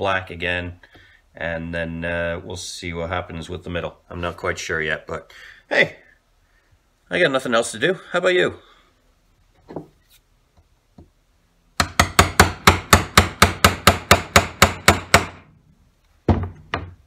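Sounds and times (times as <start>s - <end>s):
hammer striking wood chisel: 11.8s - 15.5s.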